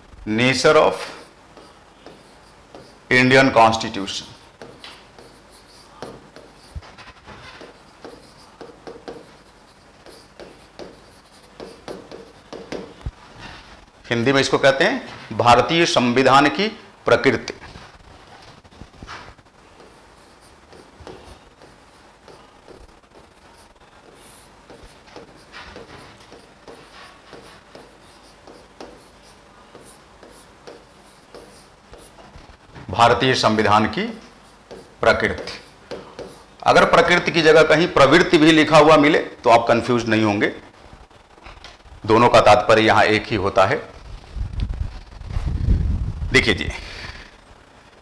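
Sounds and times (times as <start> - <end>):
stylus tapping and scratching on glass: 6.0 - 13.0, 24.0 - 32.6.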